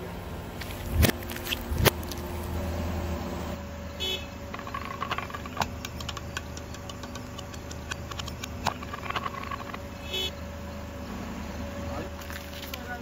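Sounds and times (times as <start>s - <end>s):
low engine hum: 0.0s - 13.0s
tyre crackling over gritty asphalt: 0.5s - 2.6s.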